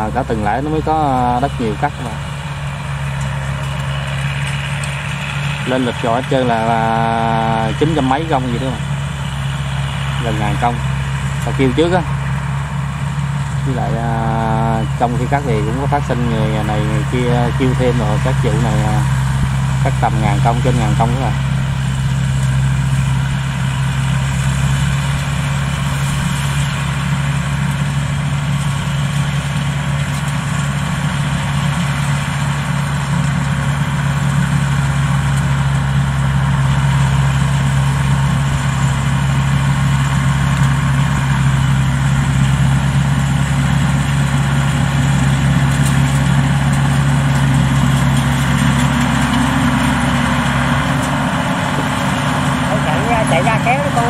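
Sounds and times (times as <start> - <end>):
combine harvester engine drone: 0.0 - 54.0
machine mechanical hum: 0.0 - 54.0.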